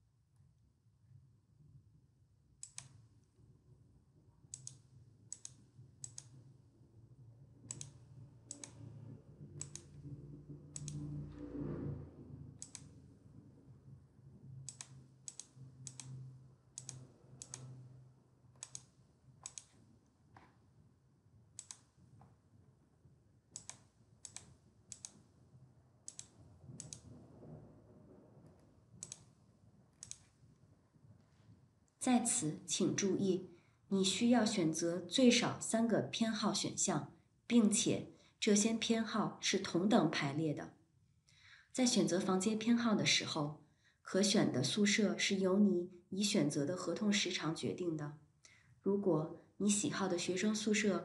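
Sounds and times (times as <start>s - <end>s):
computer mouse clicks: 2.6s - 3.1s, 4.5s - 6.4s, 7.7s - 8.8s, 9.6s - 10.0s, 10.7s - 11.1s, 12.6s - 13.0s, 14.6s - 17.8s, 18.5s - 20.5s, 21.5s - 22.0s, 23.5s - 25.3s, 26.0s - 27.2s, 28.5s - 30.4s
low rumble: 6.8s - 14.9s, 25.4s - 31.2s.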